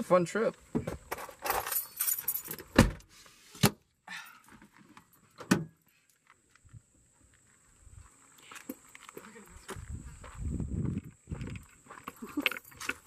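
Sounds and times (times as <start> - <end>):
keys jingling and rattling: 1.4 - 2.6.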